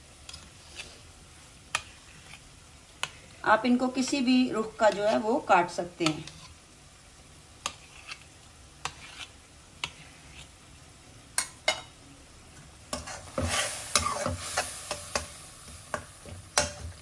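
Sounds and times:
masala sizzling in a pan: 0.0s - 17.0s
metal spatula scraping a pan: 0.3s - 1.1s, 1.7s - 3.2s, 3.9s - 6.6s, 7.6s - 10.6s, 12.9s - 16.0s.

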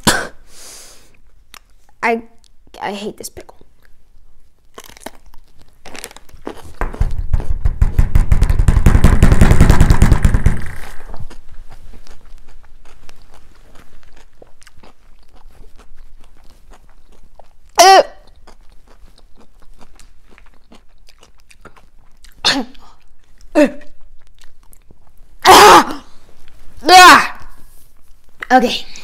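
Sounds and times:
person chewing crunchy pickle: 1.1s - 2.7s, 3.6s - 7.5s, 10.6s - 25.4s.

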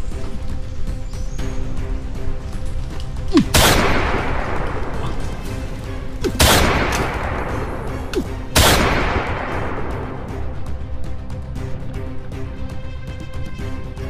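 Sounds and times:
background music: 0.0s - 14.0s
loud gunshot-like bangs: 3.4s - 4.5s, 6.3s - 7.6s, 8.6s - 9.8s.

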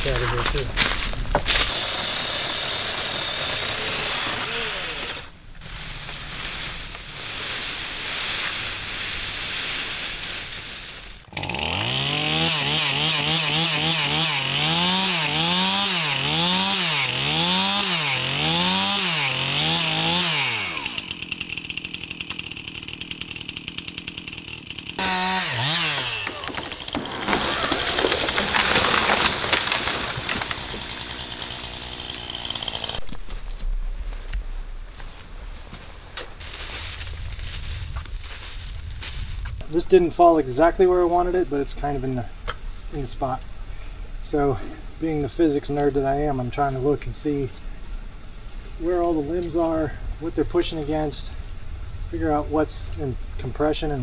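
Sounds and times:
chainsaw cutting wood: 0.0s - 5.7s, 11.2s - 33.4s.

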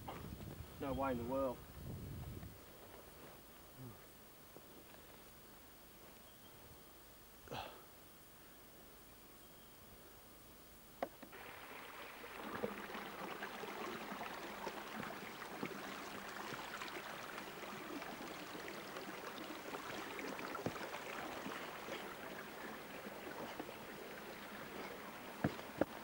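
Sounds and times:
stream water over rocks: 11.3s - 26.0s.

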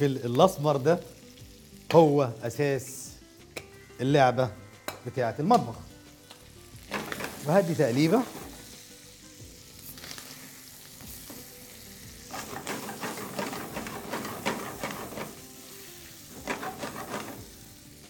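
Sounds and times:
meat sizzling in a frying pan: 0.0s - 18.0s
spoon stirring and scraping a pan: 6.8s - 8.7s, 12.2s - 17.7s.

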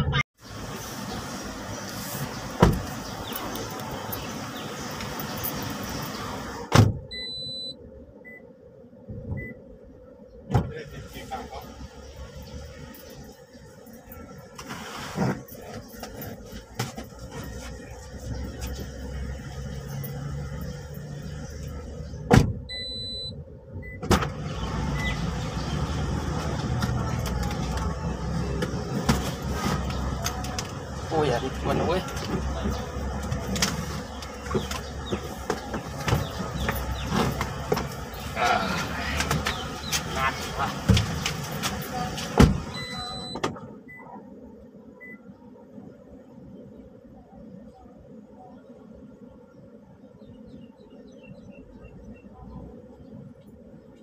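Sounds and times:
outside traffic noise: 0.0s - 46.1s
car doors slamming: 2.5s - 3.0s, 6.6s - 7.1s, 10.5s - 10.8s, 22.2s - 22.7s, 24.0s - 25.2s, 42.3s - 43.7s
short high beeps: 7.1s - 8.4s, 22.7s - 24.0s, 42.8s - 44.1s
car cabin low rumble: 17.1s - 44.1s.

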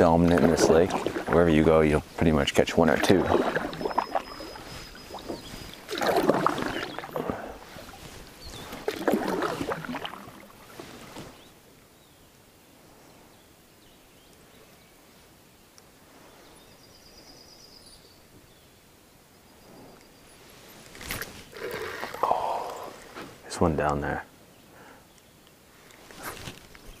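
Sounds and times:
paddle swishing through water: 0.0s - 11.5s, 21.1s - 23.4s.

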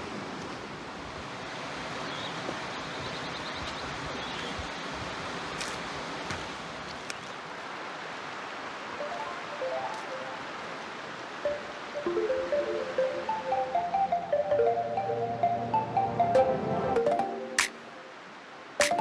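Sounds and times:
creek rushing over rocks: 3.8s - 16.1s.

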